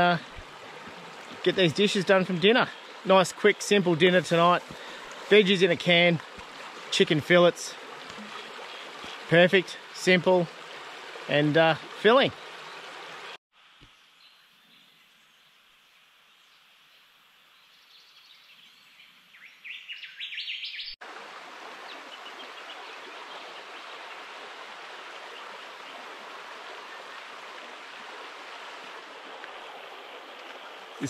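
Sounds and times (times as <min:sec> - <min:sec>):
river rippling over stones: 0:00.0 - 0:13.4, 0:21.0 - 0:31.0
bird chirping: 0:13.8 - 0:21.0.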